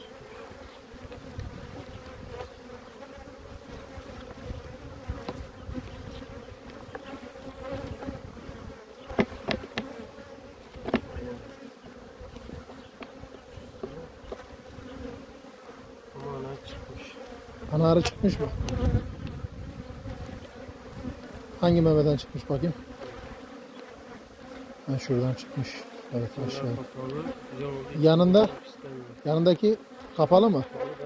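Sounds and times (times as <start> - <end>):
honeybees humming: 0.0 - 31.0
wooden hive frames clicking: 9.0 - 10.0, 10.6 - 11.3.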